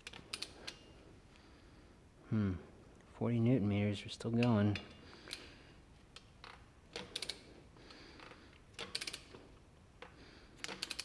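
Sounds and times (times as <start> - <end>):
torque wrench ratchet ticking: 8.8 - 9.4.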